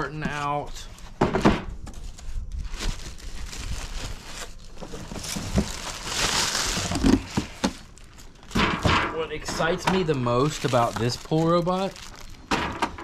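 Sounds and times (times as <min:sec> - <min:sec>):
cardboard scraping and rustling: 0:00.1 - 0:08.6.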